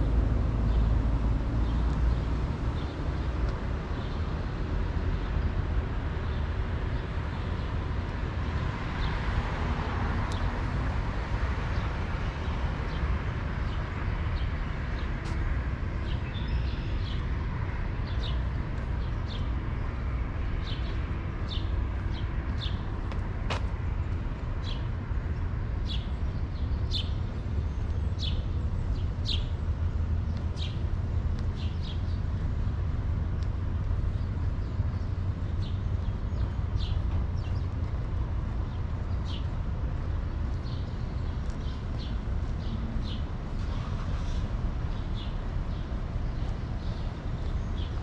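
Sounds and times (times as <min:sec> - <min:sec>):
low traffic rumble: 0:00.0 - 0:48.0
small birds chirping: 0:11.4 - 0:48.0.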